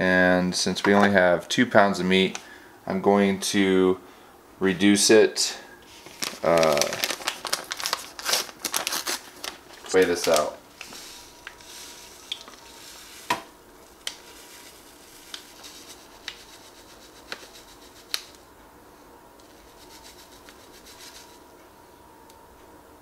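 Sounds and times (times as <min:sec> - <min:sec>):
paper packet rustling: 0:05.9 - 0:18.4, 0:19.5 - 0:21.4
powder pouring hiss: 0:09.9 - 0:13.4, 0:14.1 - 0:18.3.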